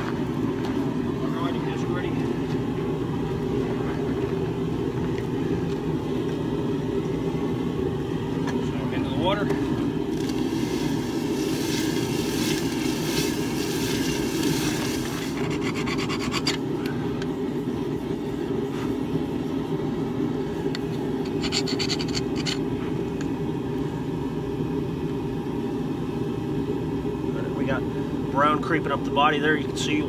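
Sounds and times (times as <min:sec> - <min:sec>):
steady low drone: 0:00.0 - 0:30.0
abrasive scrubbing metal: 0:10.1 - 0:16.6
hot steel sizzling in water: 0:10.1 - 0:16.6.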